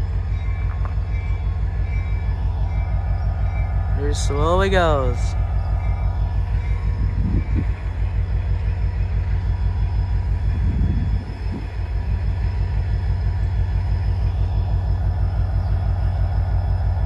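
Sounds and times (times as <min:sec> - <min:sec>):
diesel locomotive rumbling: 0:00.0 - 0:17.0.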